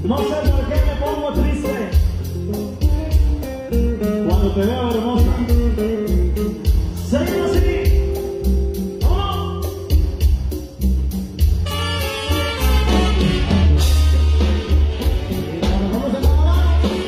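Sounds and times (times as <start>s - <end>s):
man singing: 0.0s - 1.9s, 3.9s - 8.3s, 15.3s - 17.0s
drums: 0.0s - 17.0s
electric bass: 0.0s - 17.0s
saxophone: 11.5s - 15.9s
trumpet: 11.5s - 17.0s.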